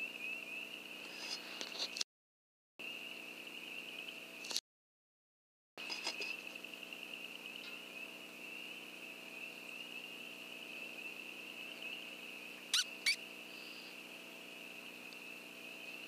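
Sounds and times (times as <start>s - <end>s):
electronic rodent distress squeal: 12.7s - 13.2s.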